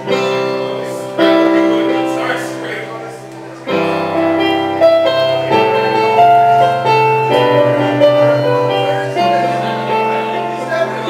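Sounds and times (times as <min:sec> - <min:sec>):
electric piano playing chords: 0:00.0 - 0:11.0.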